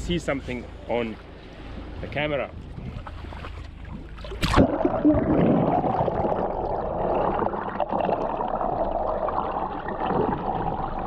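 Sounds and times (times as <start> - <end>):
underwater rushing and gurgling: 2.6 - 11.0
splash into sea: 3.1 - 6.2.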